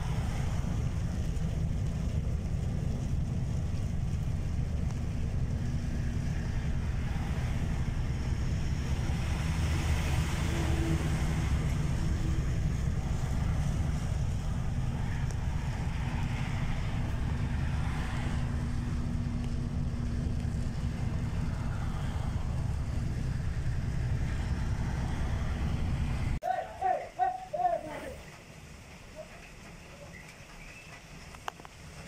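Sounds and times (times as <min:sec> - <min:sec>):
car driving on wet road: 0:00.0 - 0:26.4, 0:27.1 - 0:32.0.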